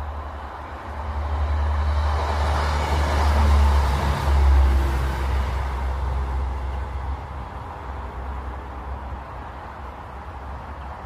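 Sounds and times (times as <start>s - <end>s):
vehicle passing by: 0.0s - 9.6s.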